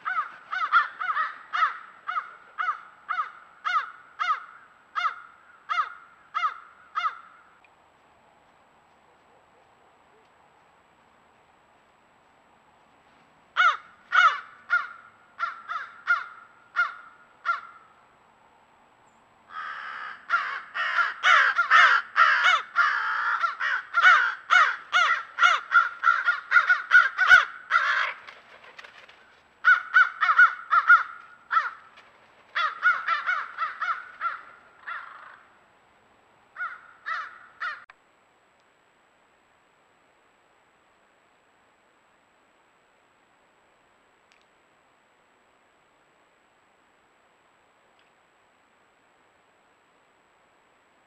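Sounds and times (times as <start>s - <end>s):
crows cawing: 0.0s - 7.6s, 13.6s - 18.0s, 19.5s - 28.4s, 29.6s - 35.6s, 36.6s - 37.9s.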